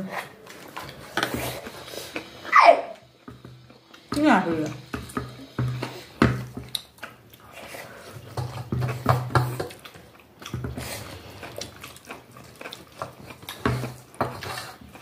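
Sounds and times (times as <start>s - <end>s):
chewing: 4.7s - 15.0s.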